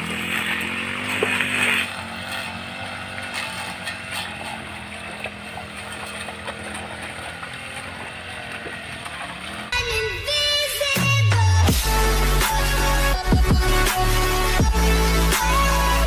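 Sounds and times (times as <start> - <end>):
motor humming: 0.0 - 9.8.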